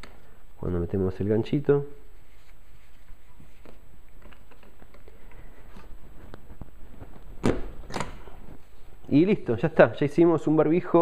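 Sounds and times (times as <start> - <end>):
paper rustling: 2.1 - 8.9.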